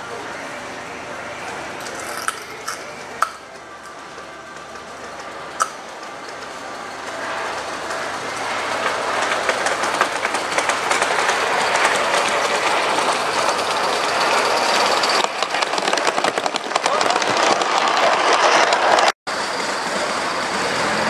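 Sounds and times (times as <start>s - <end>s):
model train wheels clicking on rails: 1.8s - 20.8s
sharp click: 5.6s - 5.8s.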